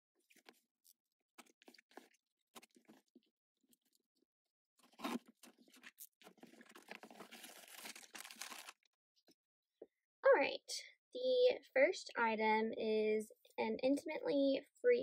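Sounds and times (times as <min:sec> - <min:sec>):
box and packaging rustling: 0:04.8 - 0:08.8
packaging crinkling: 0:04.8 - 0:08.9.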